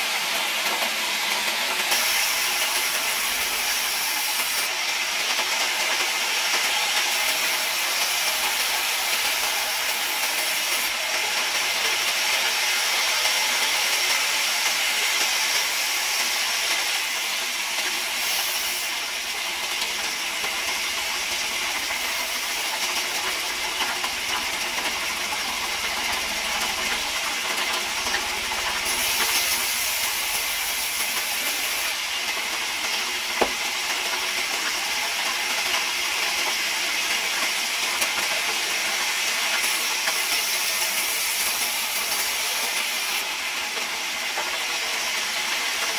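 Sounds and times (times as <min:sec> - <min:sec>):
band saw cutting wood: 0:00.7 - 0:36.6
sharp knock: 0:33.4 - 0:33.6.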